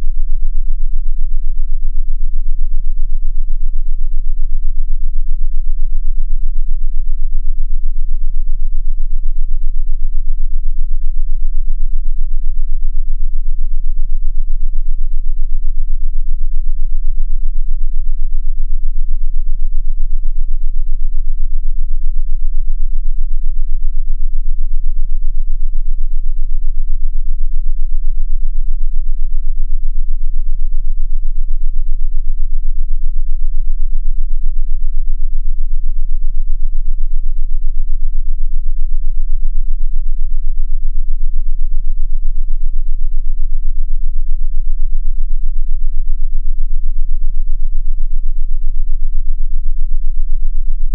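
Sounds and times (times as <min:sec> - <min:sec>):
faint hum: 0:00.0 - 0:50.9.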